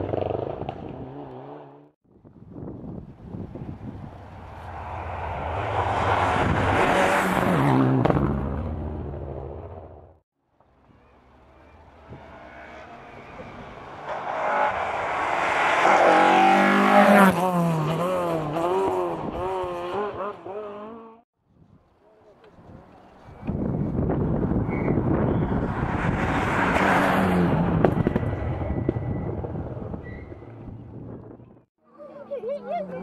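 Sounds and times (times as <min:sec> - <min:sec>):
rally car engine passing: 0:04.1 - 0:10.0, 0:11.3 - 0:21.2.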